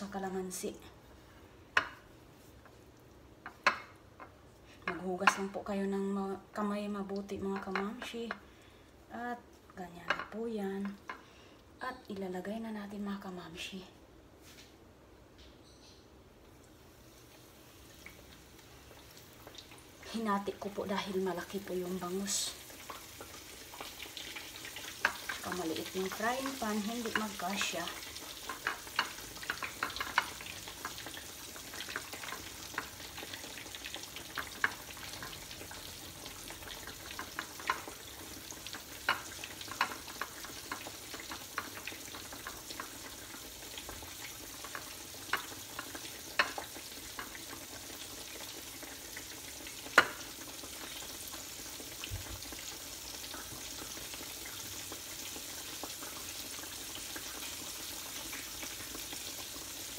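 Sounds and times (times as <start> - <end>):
fish sizzling in hot oil: 16.7 - 59.9
oil popping and clicking: 22.8 - 51.1.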